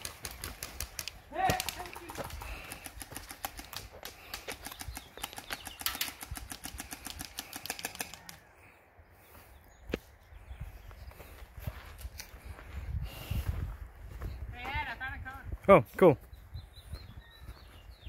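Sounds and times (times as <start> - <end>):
airsoft guns firing: 0.0 - 8.4.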